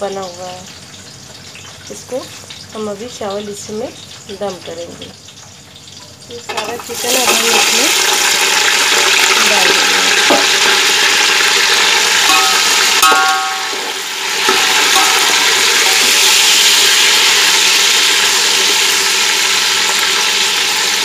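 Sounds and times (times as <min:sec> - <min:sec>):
chicken sizzling in hot oil: 0:00.0 - 0:21.0
metal spoon ringing on pot: 0:12.2 - 0:14.0, 0:14.7 - 0:16.0.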